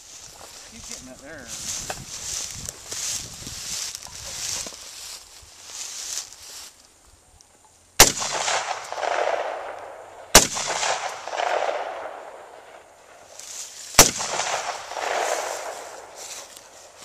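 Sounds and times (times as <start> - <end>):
rifle shots with echo: 8.0 - 13.2, 13.9 - 16.2.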